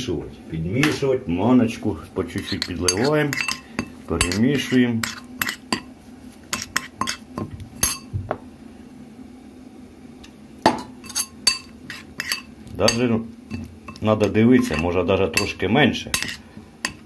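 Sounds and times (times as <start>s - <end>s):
metal spoon scraping a bowl: 2.3s - 5.9s, 6.5s - 8.1s, 11.0s - 17.0s.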